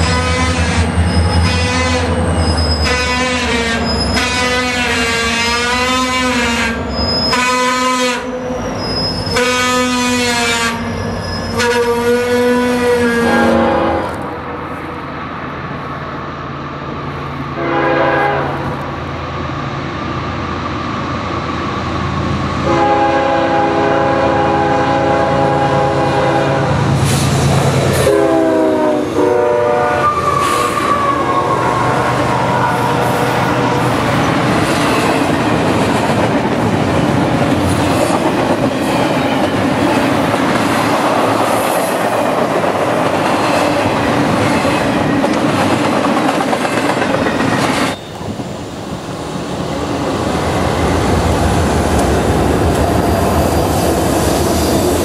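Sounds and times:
train horn blasts: 0.0 - 2.2, 2.8 - 8.5, 9.3 - 14.2, 17.6 - 18.8, 22.6 - 26.9, 28.0 - 33.8
train cars rolling and clattering: 30.2 - 55.0.

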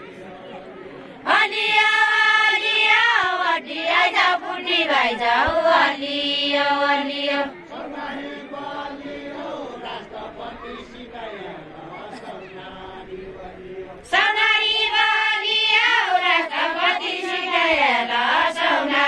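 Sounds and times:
women singing folk song: 1.2 - 10.9, 13.9 - 19.0.

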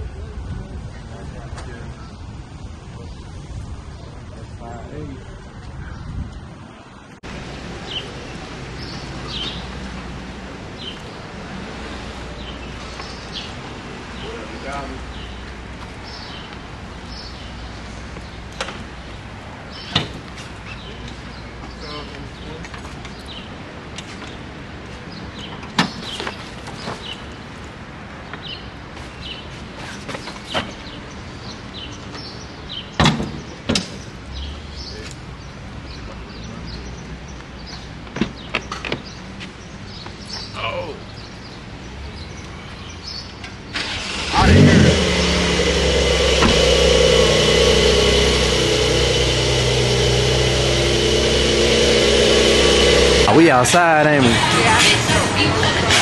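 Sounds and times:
street traffic hum: 0.0 - 56.0
birds chirping: 0.9 - 24.4, 30.1 - 55.8
car trunk lid thumping shut: 46.4 - 46.7.

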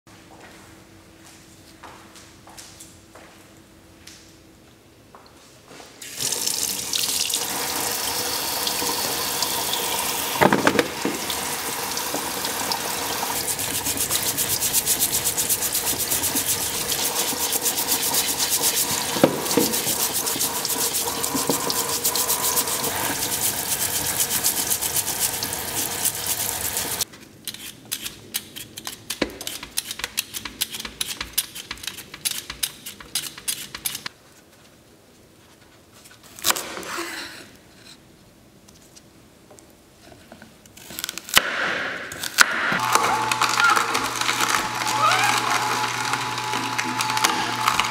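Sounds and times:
tap running into sink: 8.6 - 27.0.

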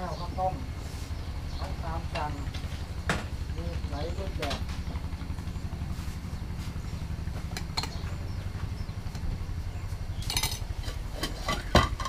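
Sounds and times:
low engine-like rumble: 0.0 - 12.0
bowls and utensils clinking: 10.2 - 10.6.

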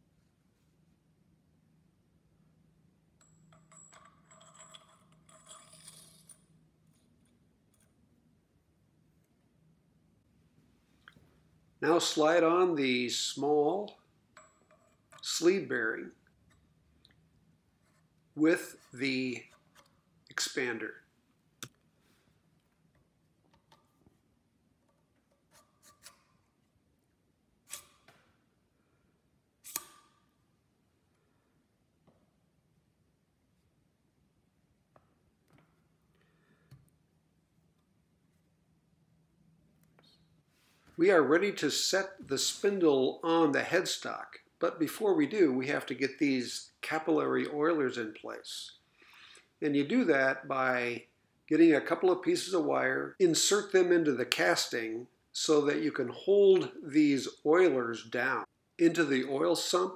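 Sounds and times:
faint metallic clinks: 3.2 - 6.6, 14.3 - 15.3
light metal scraping: 3.6 - 7.1.

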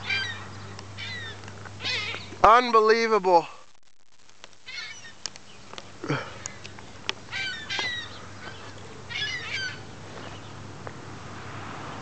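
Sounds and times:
gulls squawking: 0.0 - 2.7, 4.6 - 10.5
sharp clicks: 3.6 - 7.2.

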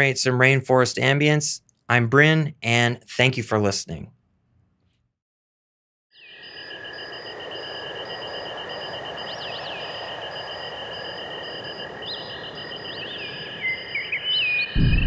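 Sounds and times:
pulsing chirp tone: 6.1 - 15.0
bird-like calls: 11.5 - 15.0.

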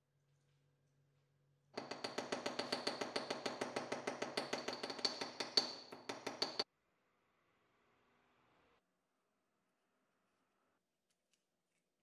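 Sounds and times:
hammer striking wire on metal vise: 1.8 - 6.6.

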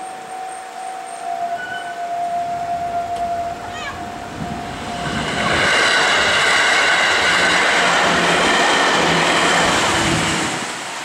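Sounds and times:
crossing warning bell ringing: 0.0 - 10.6
electric train passing: 0.0 - 11.0
high-pitched train tones: 0.0 - 11.0.

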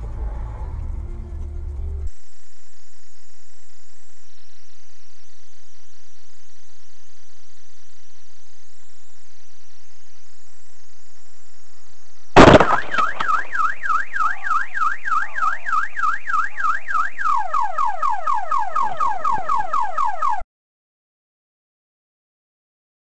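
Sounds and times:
loud bang: 12.4 - 16.0
car alarm siren: 12.4 - 20.5.

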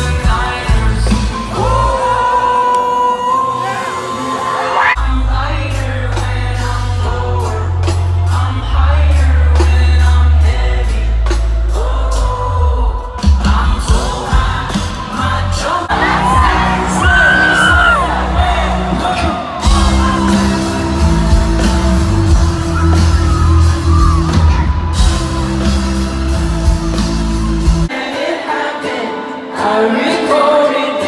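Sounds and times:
lead singer singing: 0.0 - 31.0
live band playing: 0.0 - 31.0
crowd yelling and whooping: 1.6 - 5.0, 15.9 - 27.9.

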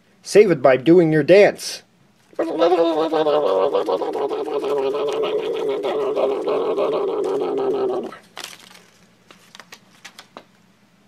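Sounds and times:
person humming a buzzing tone: 2.4 - 8.2.

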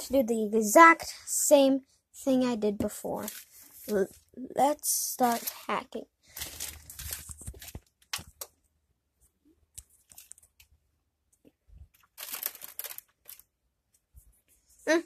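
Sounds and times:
rustling and crinkling handling: 2.8 - 10.8, 11.4 - 15.0.

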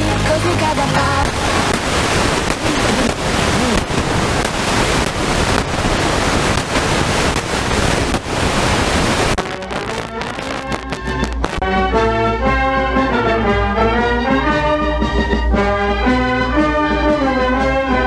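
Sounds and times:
radio static hiss: 0.0 - 11.6
radio station music: 0.0 - 11.6.

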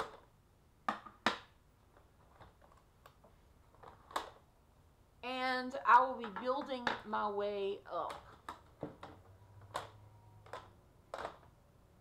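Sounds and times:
plastic cases clicking on wood: 8.0 - 11.6.

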